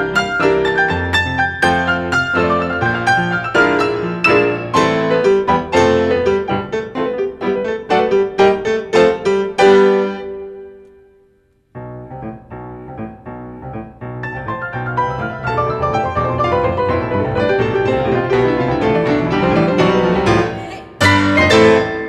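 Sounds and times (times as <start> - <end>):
two grand pianos playing: 0.0 - 11.1, 11.7 - 22.0.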